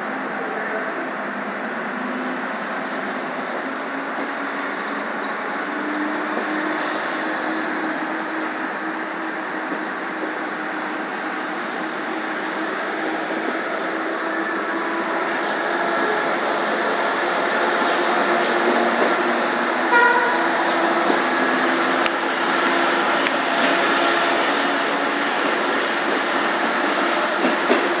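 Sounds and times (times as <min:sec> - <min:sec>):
train rolling on track: 0:00.0 - 0:28.0
high-pitched squeal: 0:10.6 - 0:28.0.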